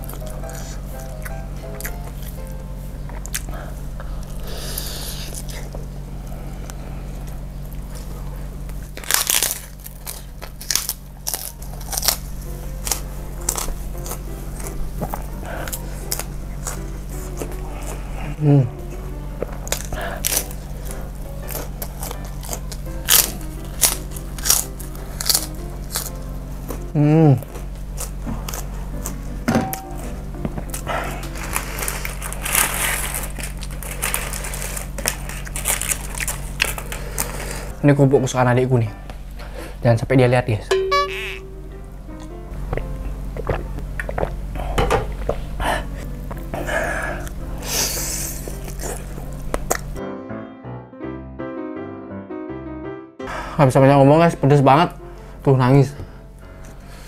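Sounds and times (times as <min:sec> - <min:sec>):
cracker crunching while chewed: 0:00.0 - 0:18.3, 0:18.9 - 0:29.4, 0:30.6 - 0:37.7, 0:42.2 - 0:44.5, 0:45.2 - 0:50.0
low electrical hum: 0:00.0 - 0:50.0, 0:53.4 - 0:57.0
plastic bag crinkling: 0:08.8 - 0:14.6, 0:31.1 - 0:37.7.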